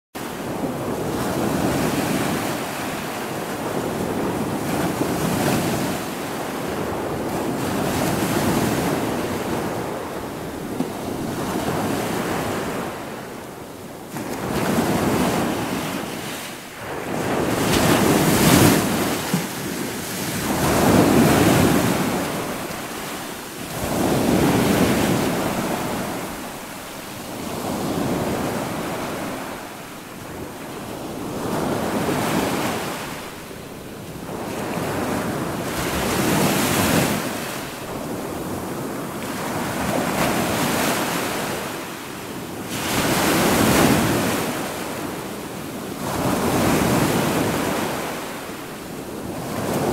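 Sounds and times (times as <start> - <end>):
surf waves breaking on sand: 0.2 - 49.9.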